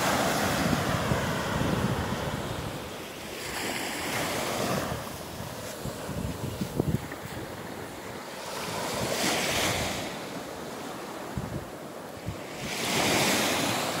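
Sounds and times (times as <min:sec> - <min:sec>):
wind buffeting microphone: 0:00.0 - 0:10.5, 0:11.2 - 0:14.0
waves washing up beach: 0:00.0 - 0:14.0.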